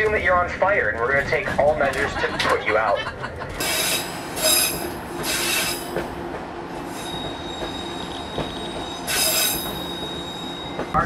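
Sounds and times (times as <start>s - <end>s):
rumble of rolling train car: 0.0s - 11.0s
thin high squeal: 3.6s - 5.9s, 6.9s - 10.8s
train wheels squealing on rails: 3.6s - 6.1s, 6.8s - 11.0s.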